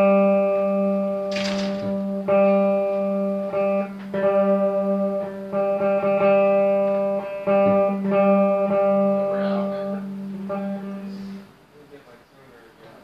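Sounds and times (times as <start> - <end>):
electric guitar plucking note: 0.0 - 11.5.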